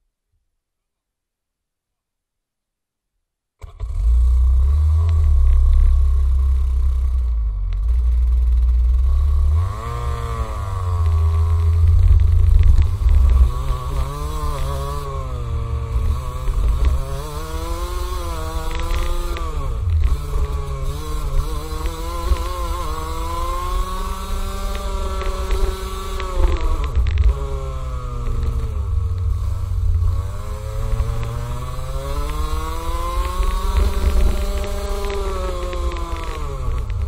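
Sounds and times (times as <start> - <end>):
kart engine revving: 3.6 - 37.0
wind rumble on microphone: 7.7 - 37.0.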